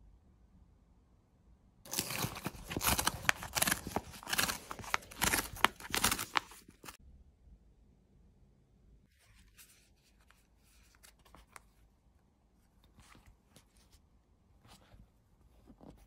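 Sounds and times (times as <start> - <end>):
cardboard strip ripping: 1.9 - 7.0.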